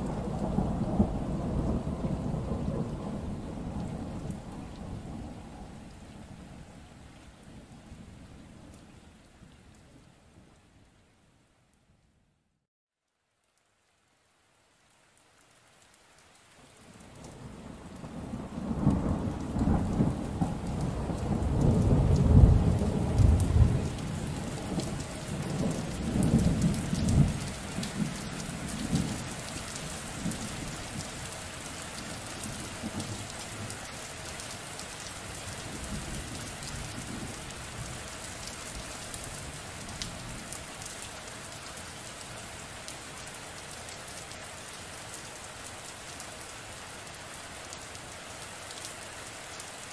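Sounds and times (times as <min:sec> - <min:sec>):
deep rumble of thunder: 0:00.0 - 0:06.5, 0:17.4 - 0:31.1
rain falling: 0:00.0 - 0:12.2, 0:13.0 - 0:49.9.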